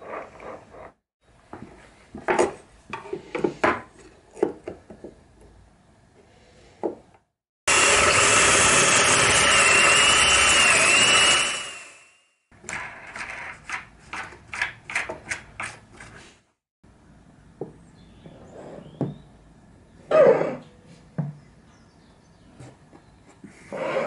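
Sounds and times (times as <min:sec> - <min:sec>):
drill boring into wood: 0:07.7 - 0:12.2.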